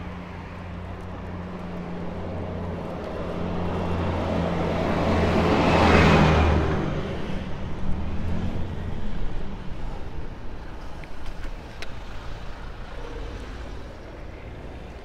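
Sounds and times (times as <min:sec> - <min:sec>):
motor vehicle passing: 0:00.0 - 0:10.6
road and wind rumble: 0:00.0 - 0:15.0.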